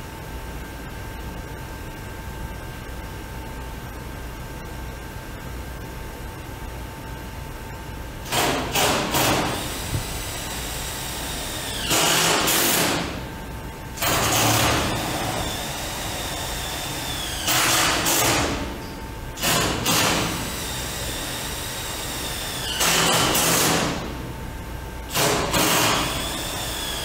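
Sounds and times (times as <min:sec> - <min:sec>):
cordless drill bursts: 0:08.3 - 0:13.2, 0:14.0 - 0:18.6, 0:19.4 - 0:24.0, 0:25.1 - 0:27.0.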